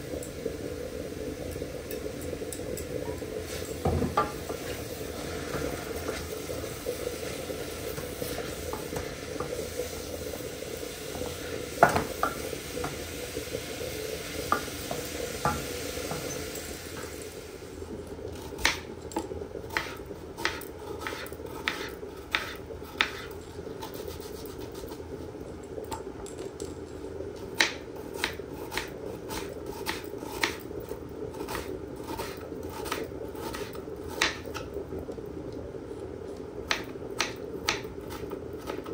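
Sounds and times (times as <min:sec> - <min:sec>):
mushrooms sizzling in a pot: 0:00.0 - 0:18.9
knife chopping onion on board: 0:19.8 - 0:23.3.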